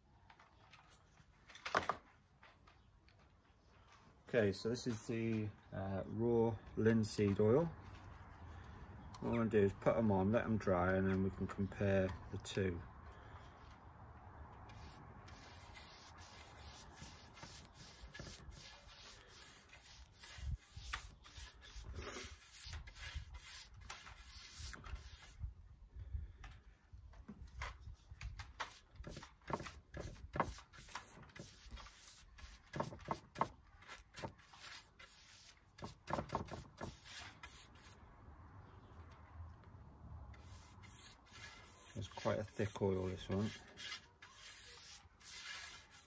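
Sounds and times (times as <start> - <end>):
paintbrush rubbing on wood: 14.7 - 25.4, 28.7 - 38.0, 40.4 - 46.0.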